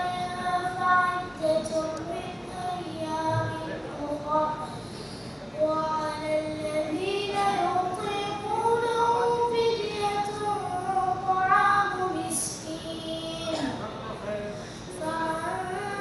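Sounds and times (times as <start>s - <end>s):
boy chanting into a microphone: 0.0s - 16.0s.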